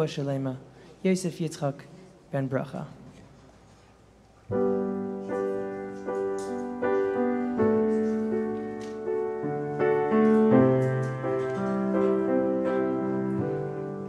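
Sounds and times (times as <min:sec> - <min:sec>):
grand piano chords: 0:04.5 - 0:14.0.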